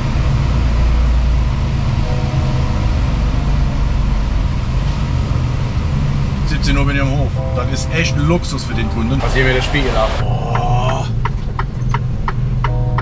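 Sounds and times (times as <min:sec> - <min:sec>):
truck engine drone: 0:00.0 - 0:13.0.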